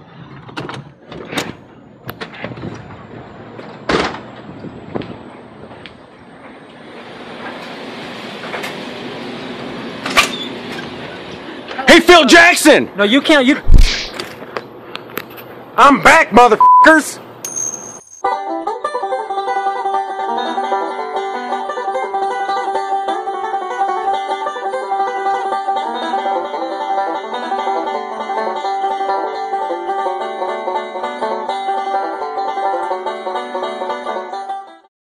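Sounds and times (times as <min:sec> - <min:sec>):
bluegrass music with banjo: 0:18.3 - 0:34.8.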